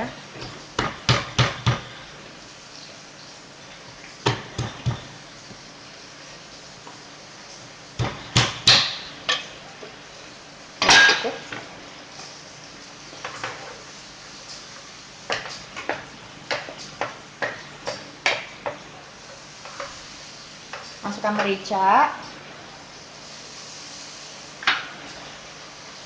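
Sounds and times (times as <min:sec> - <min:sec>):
wooden spatula tapping frying pan: 0:00.4 - 0:01.9, 0:04.2 - 0:05.2, 0:08.0 - 0:09.5, 0:15.3 - 0:18.9
kitchen utensils knocking: 0:10.8 - 0:11.6.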